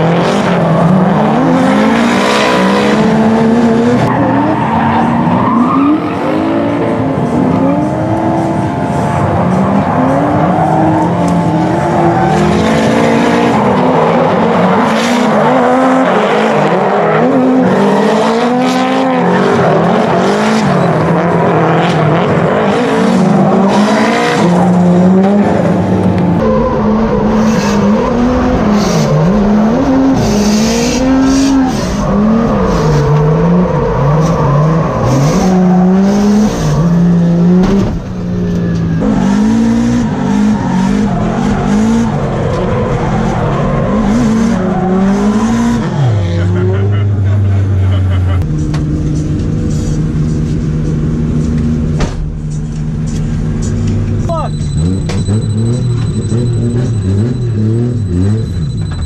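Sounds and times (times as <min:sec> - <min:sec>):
car engines revving: 0:00.0 - 0:59.0
tyre squeal: 0:26.4 - 0:37.3, 0:54.2 - 0:59.0.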